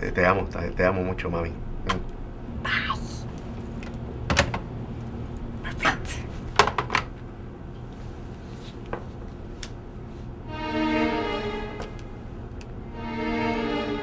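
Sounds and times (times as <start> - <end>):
low hum: 10.4 - 14.0.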